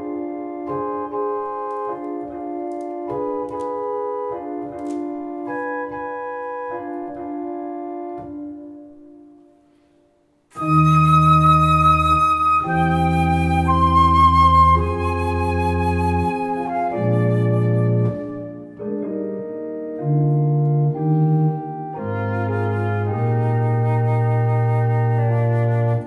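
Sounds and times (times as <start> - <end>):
electronic organ chords: 0.0 - 9.5, 10.6 - 26.0
flute with vibrato: 10.5 - 18.8, 22.0 - 26.0.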